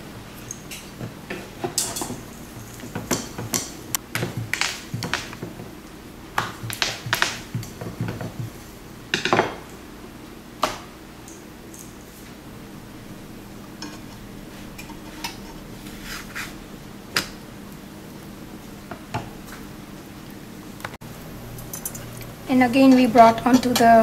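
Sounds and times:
rolling pin knocking on wooden board: 2.9s - 5.6s, 6.4s - 8.6s.

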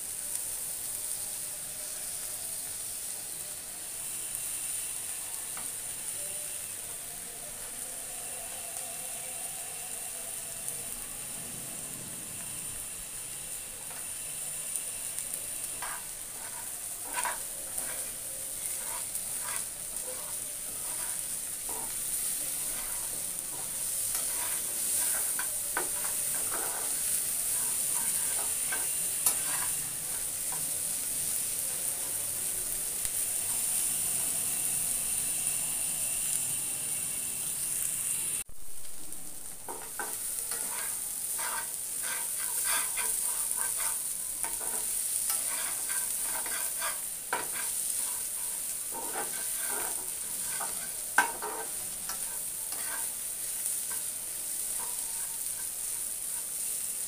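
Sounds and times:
fish frying with sizzle: 0.0s - 57.0s
spatula scraping pan: 15.7s - 31.4s, 39.7s - 56.7s.

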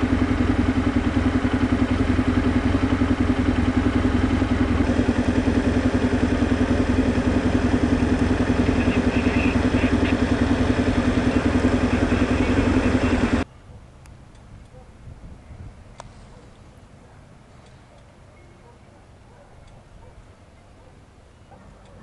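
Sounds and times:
motorboat engine running: 0.0s - 13.5s.

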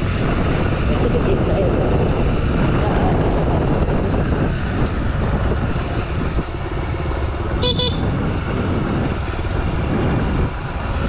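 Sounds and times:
motorcycle engine running: 0.0s - 11.0s
wind rumble on microphone: 0.0s - 11.0s
short horn beep: 7.6s - 8.1s.

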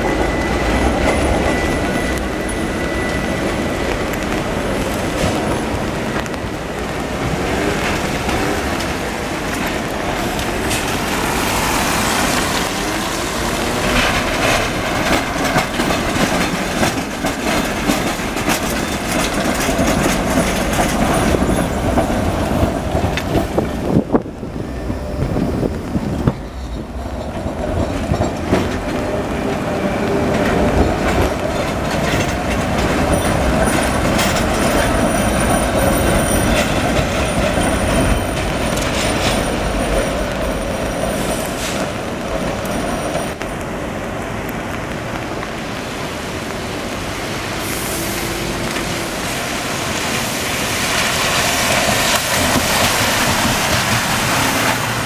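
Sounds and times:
high wheel squeal: 0.0s - 4.3s, 33.0s - 41.9s
tram wheels clattering over rails: 0.0s - 55.0s.

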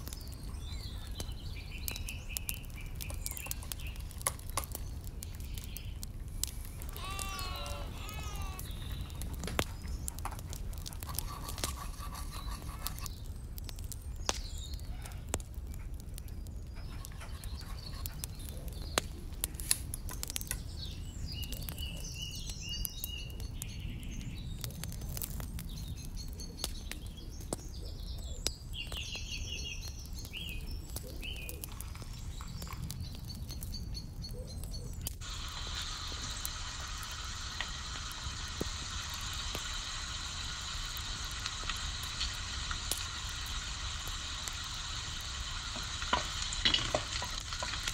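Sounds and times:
onion sizzling in hot oil: 0.0s - 13.3s, 34.8s - 47.9s
birds chirping: 0.0s - 47.9s
wood fire crackling: 0.0s - 47.9s.

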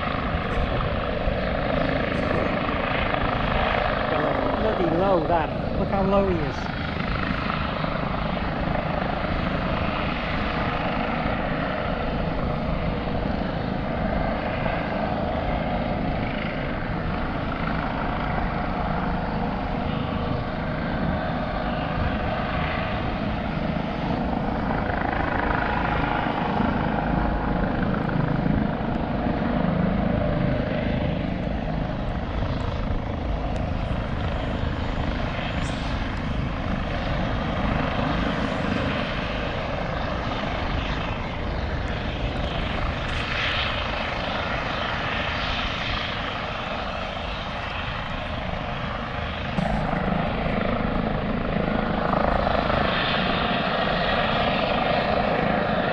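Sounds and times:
helicopter rotor and engine noise: 0.0s - 55.9s.

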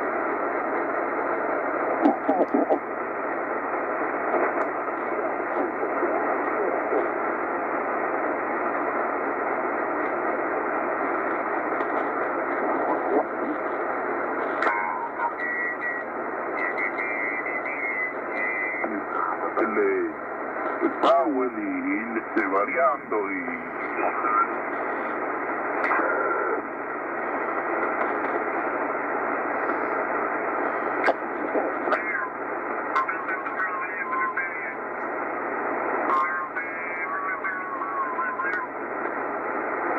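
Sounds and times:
shortwave radio static hiss: 0.0s - 39.9s
radio signal whistle: 14.8s - 18.9s.

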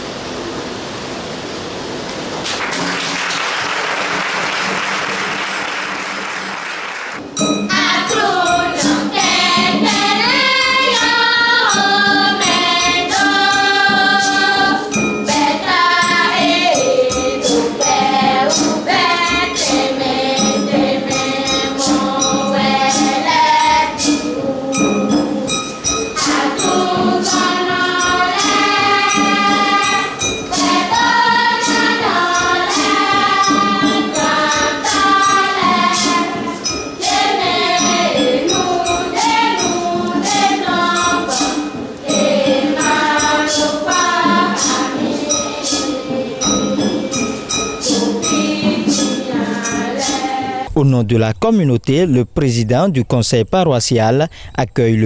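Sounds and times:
steady hiss-like noise: 0.0s - 55.0s
tambourine beat: 7.2s - 50.8s
choir singing: 7.4s - 50.7s.

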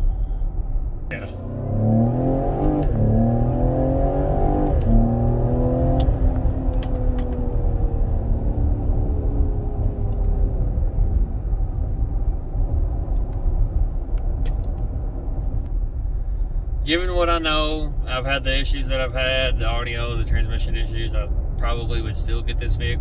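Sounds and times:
car engine revving: 1.1s - 10.2s.

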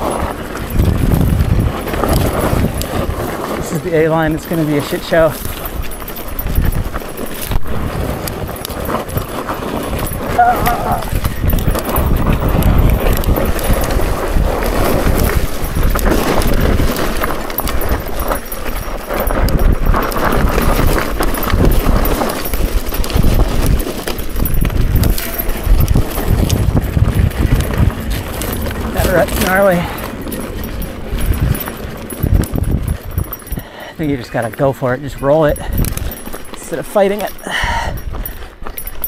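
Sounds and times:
bike rattling and clattering: 0.0s - 39.0s
tyres crunching on gravel: 0.0s - 39.0s.

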